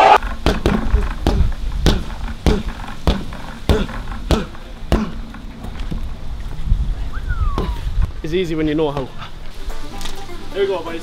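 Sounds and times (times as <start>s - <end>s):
basketball bouncing on hard court: 0.3s - 5.2s.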